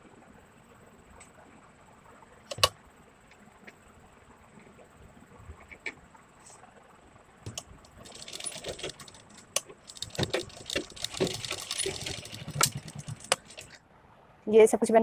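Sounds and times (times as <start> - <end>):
fabric rustling: 7.9 - 13.8.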